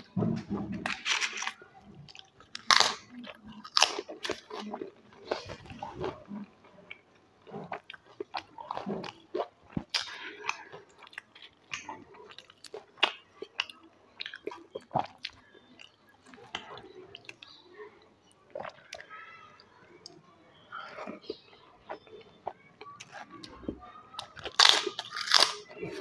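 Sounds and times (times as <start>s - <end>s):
person chewing: 0.0s - 17.6s, 18.5s - 19.1s, 20.8s - 26.0s
crisps crunching: 0.8s - 6.2s, 24.2s - 26.0s.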